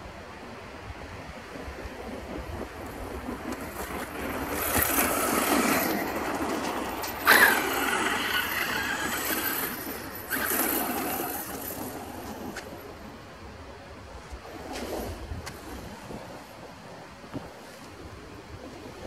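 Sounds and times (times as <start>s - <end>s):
tyres on gravel: 2.8s - 12.9s
electric toy truck motor: 3.5s - 12.8s.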